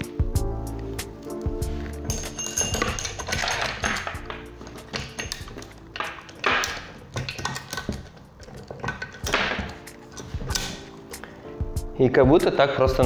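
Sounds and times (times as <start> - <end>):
saw chain clinking and rattling: 1.8 - 10.9
chain scraping along bar: 1.8 - 11.0
metallic taps and knocks: 1.9 - 11.3.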